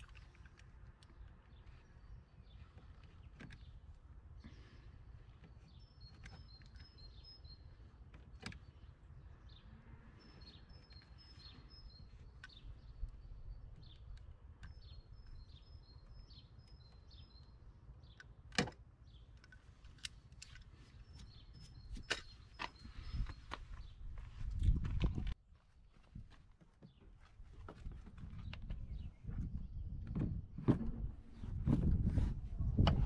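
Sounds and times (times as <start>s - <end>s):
bird chirping: 1.1s - 18.4s, 19.0s - 24.7s.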